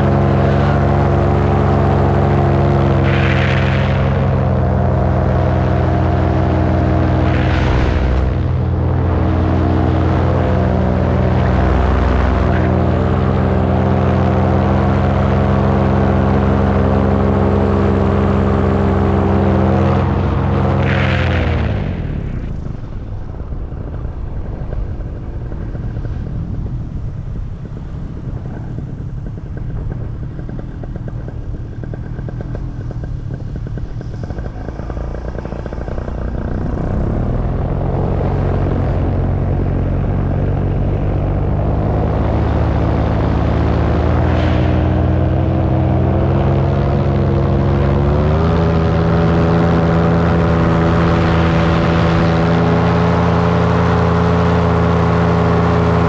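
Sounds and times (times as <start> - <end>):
paramotor engine and propeller: 0.0 - 56.0
wind rushing past microphone: 20.0 - 53.2.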